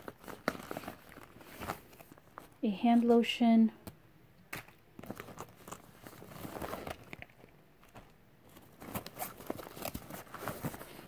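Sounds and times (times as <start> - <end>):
rustling in nylon backpack: 5.0 - 7.2, 8.5 - 11.0.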